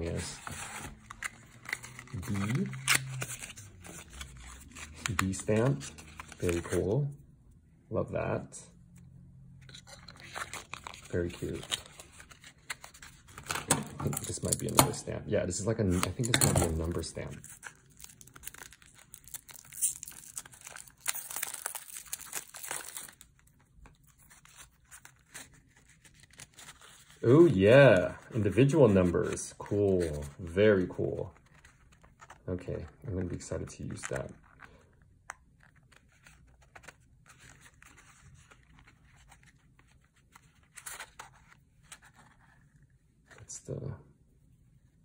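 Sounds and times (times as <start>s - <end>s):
plastic wrapping crinkling and tearing: 0.7s - 6.8s, 15.9s - 28.5s.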